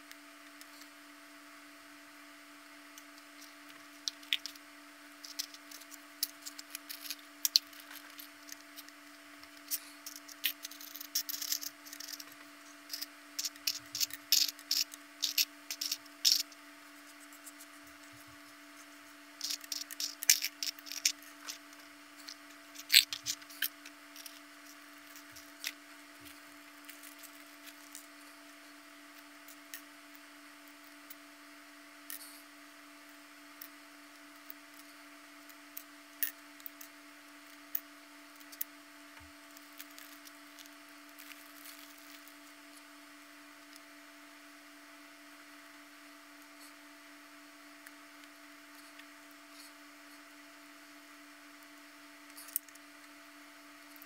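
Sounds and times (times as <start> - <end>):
faint steady hum: 0.0 - 54.0
puzzle parts clicking: 4.0 - 4.6, 5.2 - 16.5, 19.4 - 25.8.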